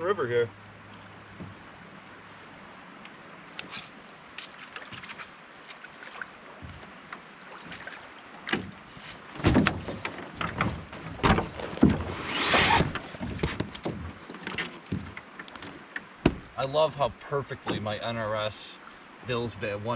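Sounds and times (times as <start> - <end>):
knocks and thumps against canoe hull: 1.3 - 1.6, 6.5 - 18.0
brief scrape: 3.6 - 3.9, 12.2 - 12.9.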